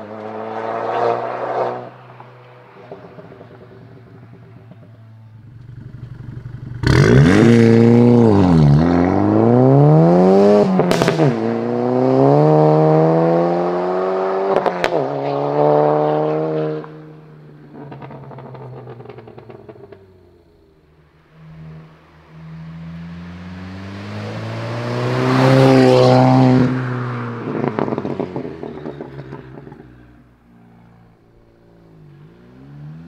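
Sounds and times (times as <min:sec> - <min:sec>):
car engine accelerating hard: 0:00.0 - 0:33.0
exhaust crackles: 0:02.1 - 0:09.6.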